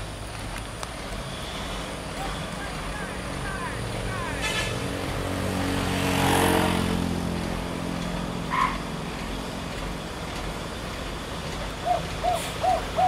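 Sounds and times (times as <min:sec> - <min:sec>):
truck diesel engine under load: 0:00.0 - 0:13.0.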